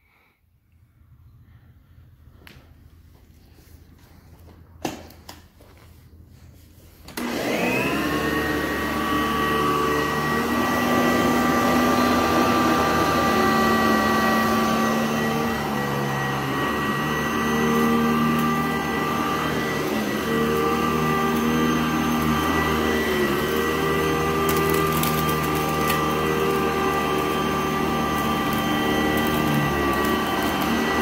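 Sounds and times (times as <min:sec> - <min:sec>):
upright vacuum cleaner running: 0:06.6 - 0:31.0.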